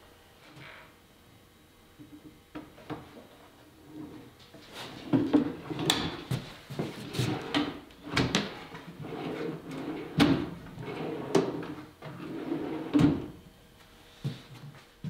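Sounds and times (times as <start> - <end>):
drawer slides rattling: 7.1 - 13.3.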